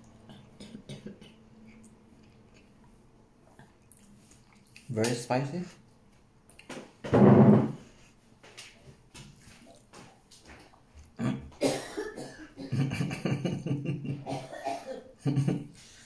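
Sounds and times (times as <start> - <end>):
soft eating noises: 0.0 - 7.0, 7.8 - 11.7.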